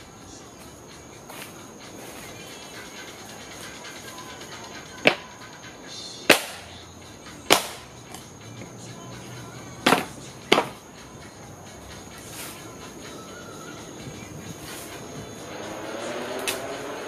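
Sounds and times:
wooden slats cracking: 0:06.3 - 0:06.7, 0:07.5 - 0:08.2, 0:09.8 - 0:10.8.

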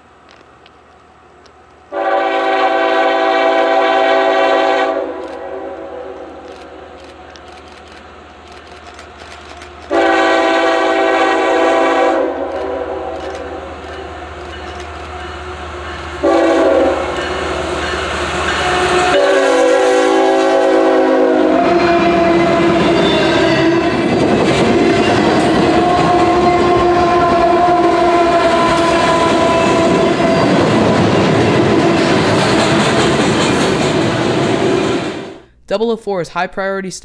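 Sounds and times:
train horn: 0:01.9 - 0:06.3, 0:09.9 - 0:13.3, 0:16.2 - 0:24.1, 0:24.8 - 0:32.0
train wheels clickety-clack: 0:12.5 - 0:19.3, 0:22.4 - 0:35.2.

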